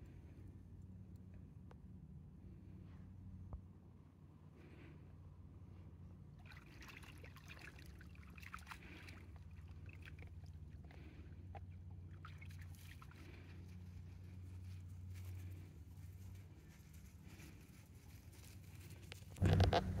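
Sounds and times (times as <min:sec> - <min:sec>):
dog wading through shallow water: 0:06.4 - 0:15.3
steady low rumble: 0:13.3 - 0:20.0.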